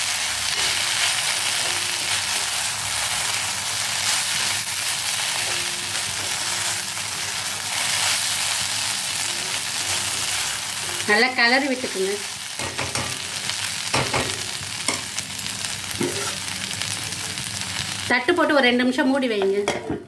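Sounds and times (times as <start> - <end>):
okra sizzling in oil: 0.0 - 18.7
spatula stirring in pan: 0.1 - 11.2.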